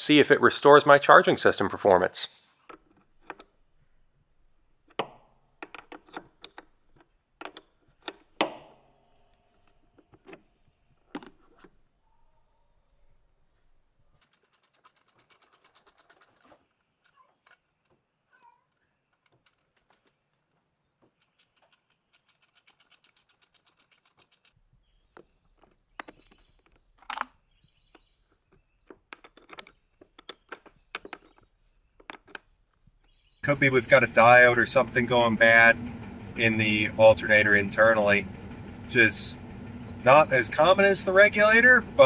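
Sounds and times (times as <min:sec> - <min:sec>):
hand tools clicking rapidly: 0:14.2 - 0:17.2, 0:21.2 - 0:24.6.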